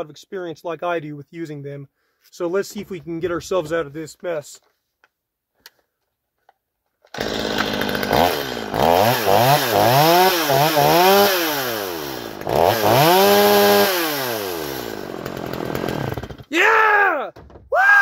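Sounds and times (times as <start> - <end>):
chainsaw revving: 7.1 - 16.5.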